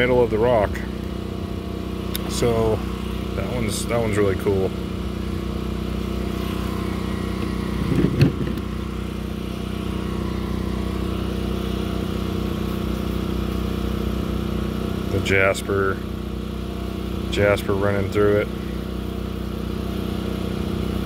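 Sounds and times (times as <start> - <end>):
engine humming: 0.0 - 21.0.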